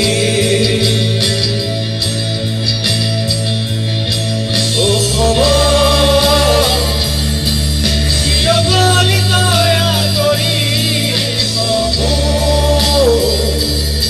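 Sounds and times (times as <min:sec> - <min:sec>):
live rock band playing: 0:00.0 - 0:14.0
man singing long note: 0:04.8 - 0:07.2.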